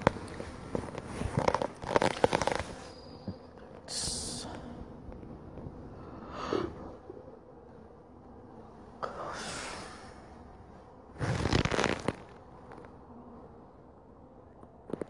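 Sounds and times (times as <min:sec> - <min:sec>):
honeybees humming: 0:00.0 - 0:15.0
breathy noise rushes: 0:05.9 - 0:07.2, 0:11.2 - 0:12.2.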